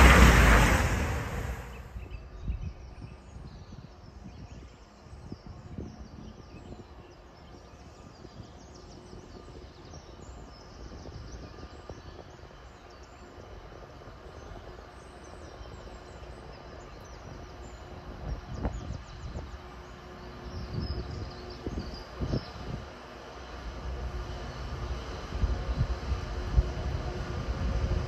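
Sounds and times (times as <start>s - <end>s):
low uneven rumble: 0.0s - 2.2s.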